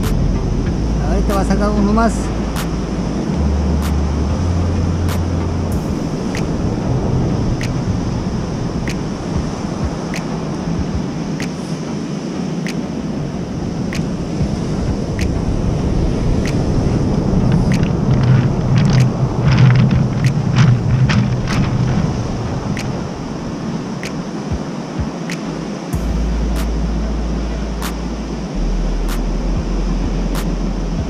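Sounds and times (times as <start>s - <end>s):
wind buffeting microphone: 0.0s - 31.0s
surf breaking on cobble beach: 4.9s - 26.0s
footsteps on clattering stones: 17.5s - 22.2s.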